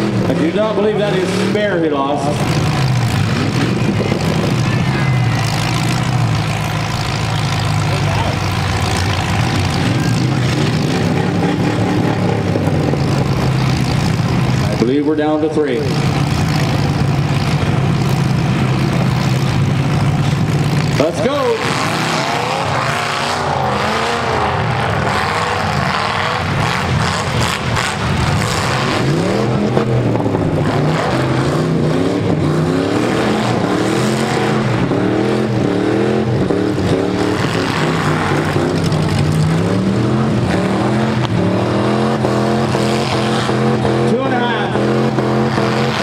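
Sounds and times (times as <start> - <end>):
car engines revving hard: 0.0 - 46.0.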